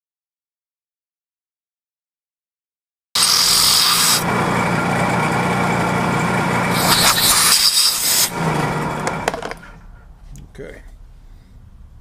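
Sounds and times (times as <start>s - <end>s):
drill bit cutting metal: 3.2s - 4.3s, 6.7s - 8.4s
milling machine motor hum: 3.2s - 9.5s.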